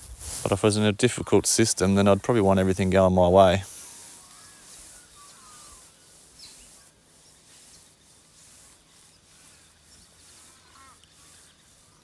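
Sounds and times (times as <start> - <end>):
background hiss: 0.0 - 12.0
bird chirps: 3.9 - 8.1.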